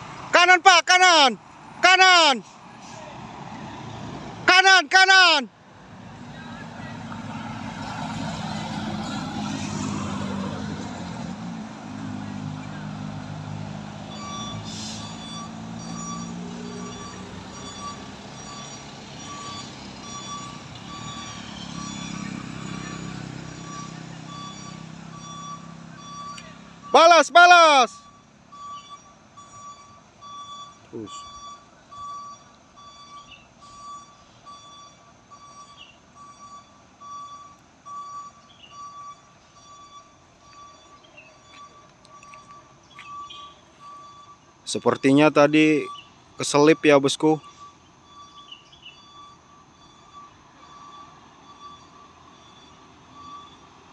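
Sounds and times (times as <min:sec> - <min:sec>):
truck reversing alarm beeping: 0:00.0 - 0:05.5, 0:06.1 - 0:53.9
person talking: 0:00.3 - 0:03.2, 0:04.4 - 0:05.5, 0:26.4 - 0:28.0
truck engine running: 0:05.6 - 0:53.9.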